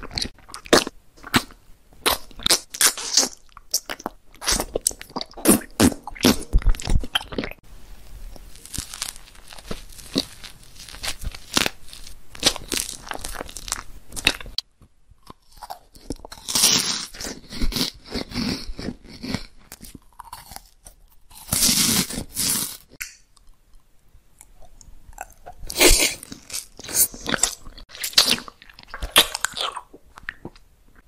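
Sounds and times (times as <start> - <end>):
crunchy bites and chewing: 8.3 - 14.6, 15.2 - 23.6, 24.6 - 30.6.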